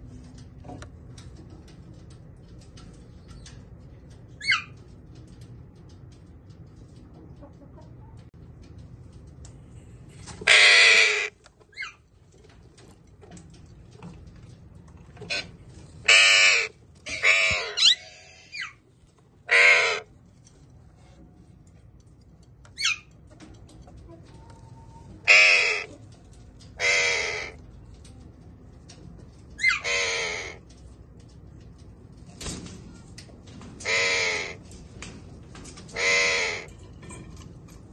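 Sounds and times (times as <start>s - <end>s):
parakeets screeching: 10.4s - 12.0s, 15.3s - 18.8s, 19.5s - 20.0s, 25.2s - 25.9s, 26.8s - 27.6s, 29.6s - 30.6s, 33.8s - 34.6s, 35.9s - 36.7s.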